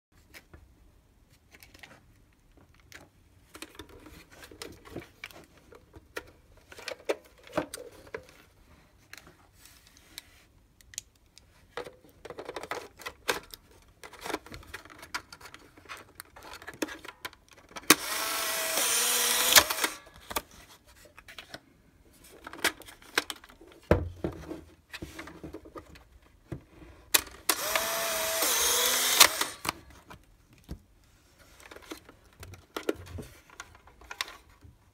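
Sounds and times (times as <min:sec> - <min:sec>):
plastic camera clicks and snaps: 0:17.8 - 0:20.5, 0:27.1 - 0:30.0
camera shutter click: 0:17.9 - 0:20.0, 0:27.5 - 0:29.8
camera motor whirring: 0:17.9 - 0:20.1, 0:27.5 - 0:29.8.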